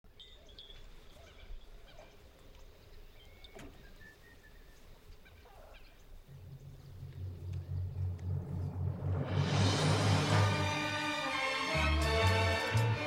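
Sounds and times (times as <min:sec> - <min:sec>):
bird chirps and whistled calls: 0:02.9 - 0:06.9
low steady rumble: 0:06.3 - 0:10.0.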